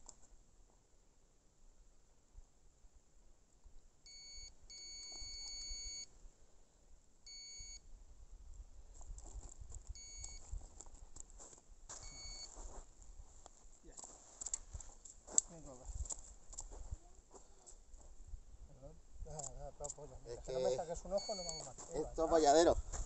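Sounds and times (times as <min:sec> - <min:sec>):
electronic bite alarm beeping: 0:04.1 - 0:06.1, 0:07.3 - 0:07.8, 0:10.0 - 0:10.4, 0:12.0 - 0:12.5, 0:21.2 - 0:21.8
rustling and handling clicks: 0:14.0 - 0:16.2.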